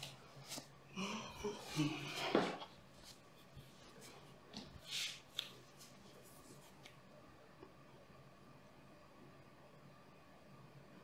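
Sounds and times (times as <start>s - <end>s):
rustling on a yoga mat: 1.6s - 6.9s.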